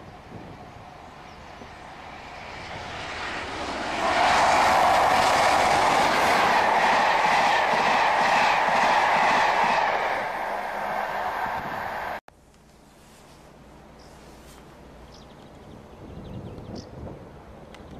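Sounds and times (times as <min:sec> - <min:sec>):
diesel locomotive passing: 0:00.0 - 0:12.2
train wheels clacking over rail joints: 0:03.8 - 0:12.1.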